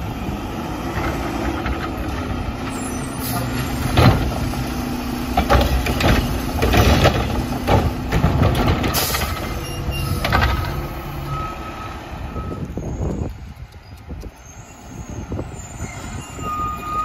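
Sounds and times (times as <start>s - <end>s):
garbage truck engine running: 0.0s - 12.9s.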